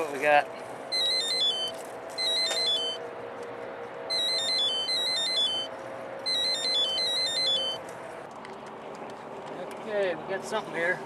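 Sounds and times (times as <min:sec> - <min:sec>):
electronic ringtone melody: 0:00.9 - 0:03.0, 0:04.1 - 0:07.8.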